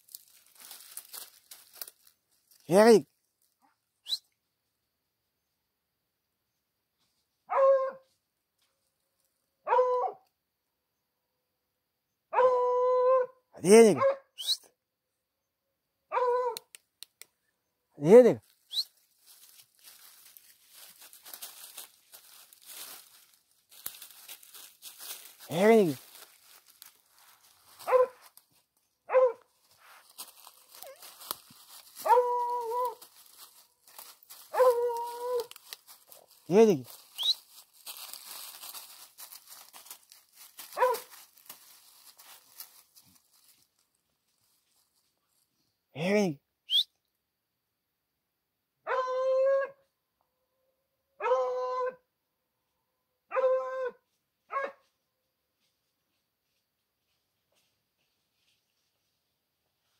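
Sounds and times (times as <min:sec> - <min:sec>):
dog barking: 0:07.5 - 0:08.1, 0:09.6 - 0:10.2, 0:12.3 - 0:13.3, 0:13.9 - 0:14.4, 0:16.1 - 0:16.6, 0:27.8 - 0:28.3, 0:29.1 - 0:29.5, 0:32.0 - 0:33.0, 0:34.5 - 0:35.5, 0:40.7 - 0:41.2, 0:48.8 - 0:49.8, 0:51.2 - 0:52.0, 0:53.3 - 0:54.8
dog baying: 0:32.0 - 0:33.4, 0:34.4 - 0:35.6, 0:40.6 - 0:41.2.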